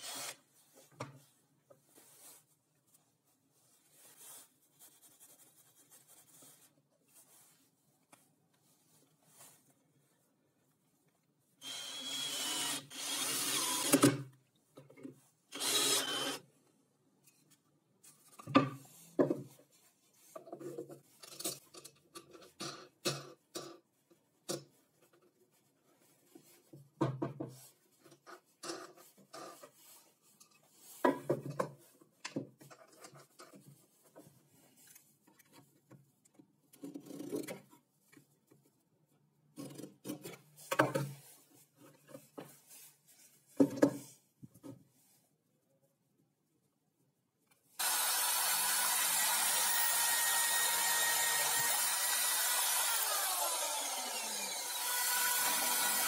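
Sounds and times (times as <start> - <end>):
cordless drill running: 0.0 - 0.4, 11.6 - 14.0, 15.5 - 16.4, 47.8 - 56.0.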